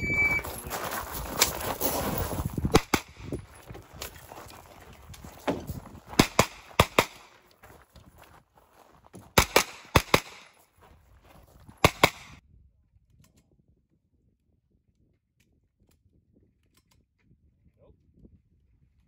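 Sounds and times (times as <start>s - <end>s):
carbine gunshots: 6.2s - 7.3s, 9.4s - 10.5s, 11.8s - 12.4s.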